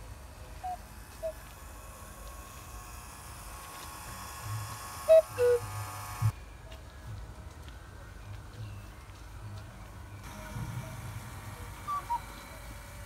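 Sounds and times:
mechanical cuckoo calls: 0:00.0 - 0:03.5, 0:04.2 - 0:06.4, 0:11.5 - 0:13.0
faint steady hum: 0:00.0 - 0:13.0.

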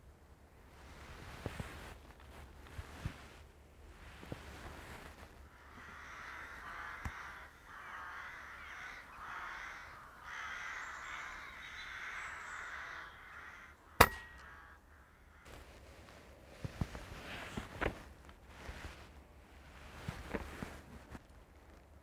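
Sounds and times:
crow cawing: 0:05.4 - 0:15.5
air rifle shot: 0:14.0 - 0:14.5.

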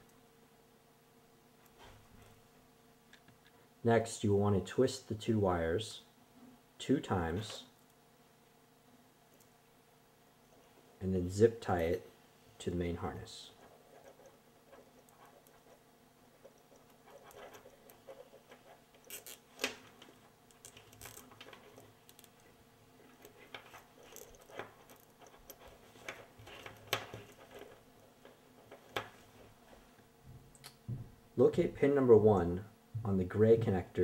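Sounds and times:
wires rustling: 0:12.6 - 0:30.7.

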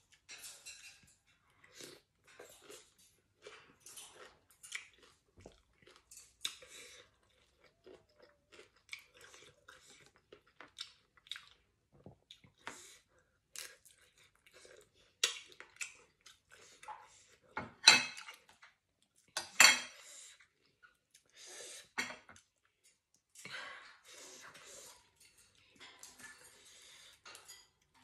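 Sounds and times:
chewing and mouth sounds: 0:01.5 - 0:17.6.

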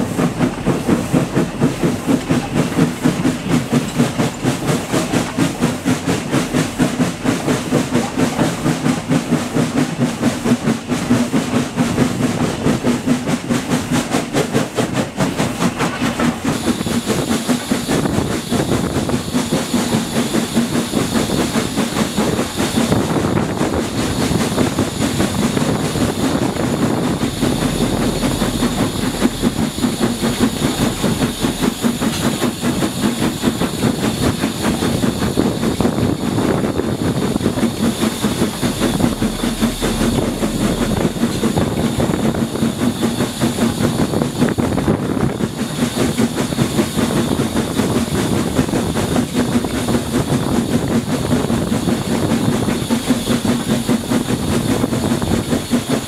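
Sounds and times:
steam locomotive exhaust and hiss: 0:00.0 - 0:56.0
wind buffeting microphone: 0:14.6 - 0:55.8.

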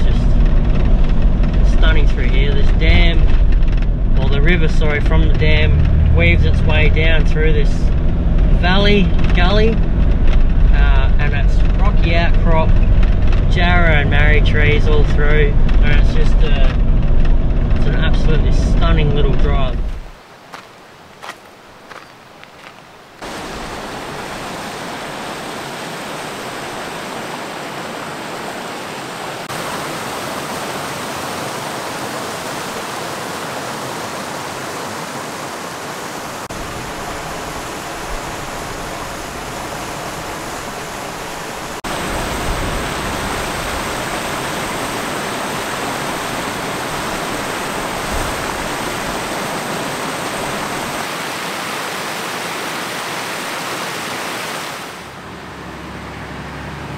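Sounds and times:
river rapids rushing over rocks: 0:20.2 - 0:55.3.

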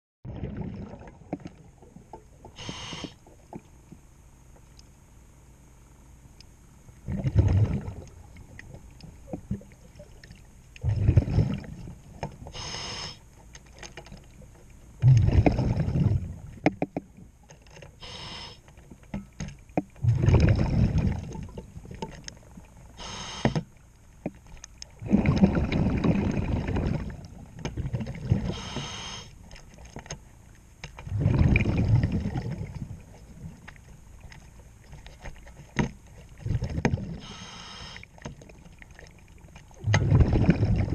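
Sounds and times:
exhaled bubbles rumbling: 0:00.2 - 0:03.7, 0:07.0 - 0:12.6, 0:14.2 - 0:17.4, 0:20.0 - 0:23.4, 0:24.9 - 0:29.9, 0:31.0 - 0:35.4, 0:36.2 - 0:37.4, 0:38.2 - 0:40.9
regulator hiss on inhale: 0:02.5 - 0:03.3, 0:12.5 - 0:13.3, 0:18.0 - 0:18.7, 0:23.0 - 0:23.7, 0:28.5 - 0:29.4, 0:37.2 - 0:38.1.

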